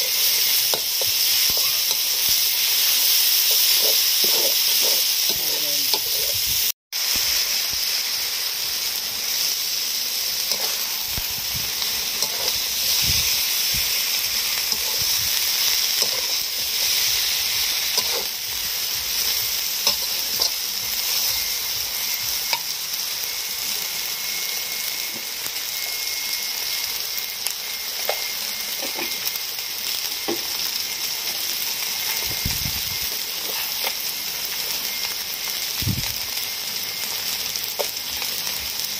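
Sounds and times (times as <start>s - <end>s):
metal spatula scraping a wok: 0.0s - 6.7s, 9.2s - 22.8s, 33.0s - 35.0s
food sizzling in a wok: 0.0s - 38.9s.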